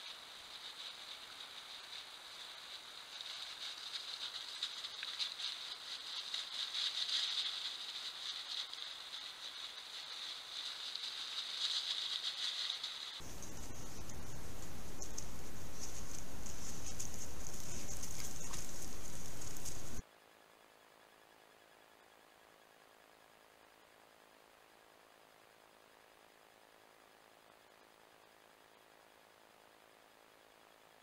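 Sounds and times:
boars rooting and chewing: 0:00.1 - 0:20.0.

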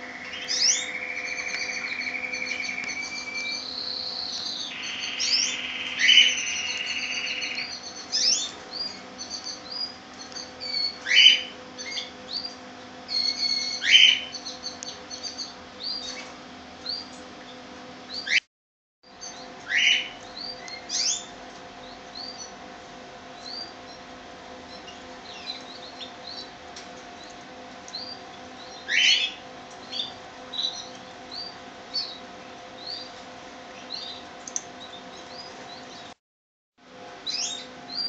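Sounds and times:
downward sweeping bird calls: 0:00.0 - 0:12.5
canaries chirping: 0:00.0 - 0:18.4, 0:19.1 - 0:22.6, 0:23.3 - 0:36.2, 0:37.2 - 0:38.0
faint steady hum: 0:00.0 - 0:18.4.

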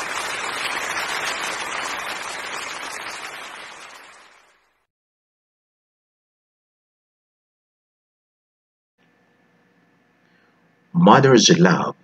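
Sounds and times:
applause: 0:00.0 - 0:04.9.

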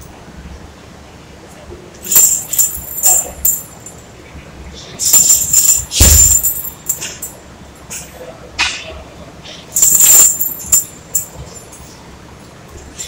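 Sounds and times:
metal chain jingling: 0:02.1 - 0:04.1, 0:05.0 - 0:07.4, 0:09.8 - 0:12.0
punches hitting heavy bag: 0:05.9 - 0:06.7.

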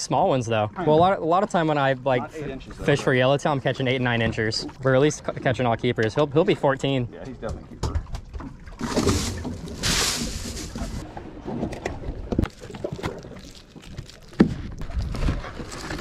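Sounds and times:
cardboard box rustling: 0:08.8 - 0:11.0
plastic wrap rustling: 0:08.9 - 0:11.0.

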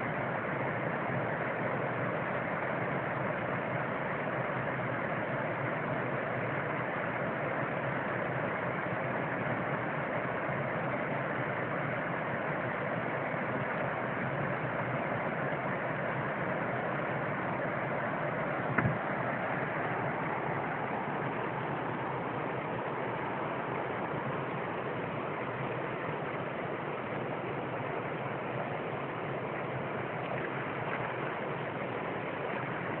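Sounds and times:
water pouring over weir: 0:11.2 - 0:33.0.

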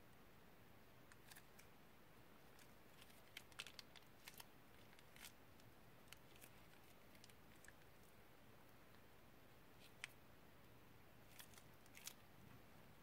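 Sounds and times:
plastic piping bag crinkling: 0:02.5 - 0:08.2, 0:11.2 - 0:12.2.

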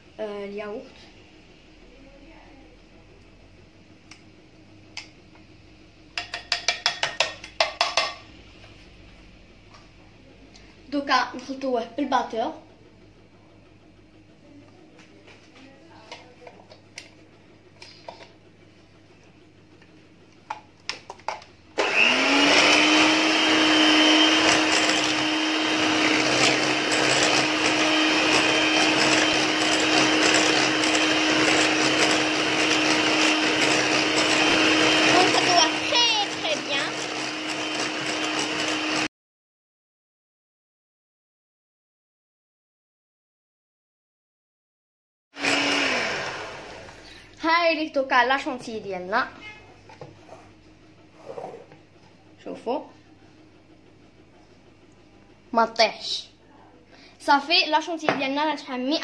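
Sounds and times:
electric hand mixer whining: 0:21.8 - 0:39.1, 0:45.4 - 0:47.3.

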